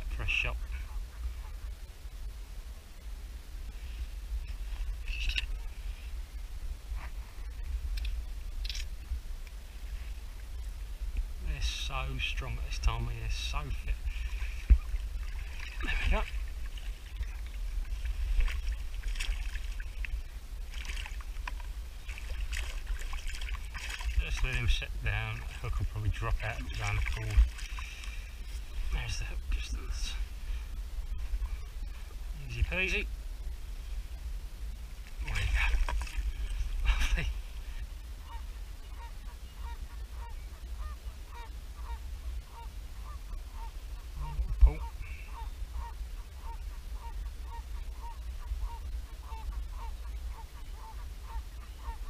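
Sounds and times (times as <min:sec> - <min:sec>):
steady low rumble: 0:00.0 - 0:51.7
fish splashing in net: 0:22.1 - 0:24.2
goose honking: 0:38.2 - 0:52.0.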